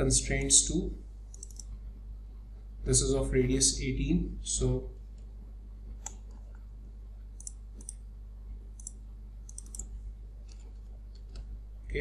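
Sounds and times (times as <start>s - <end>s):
mouse and keyboard clicks: 1.3s - 1.7s, 8.8s - 9.9s.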